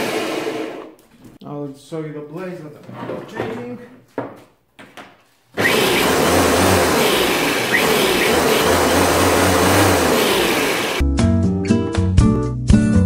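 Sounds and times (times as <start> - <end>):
electric lawnmower motor whirring: 5.6 - 11.0.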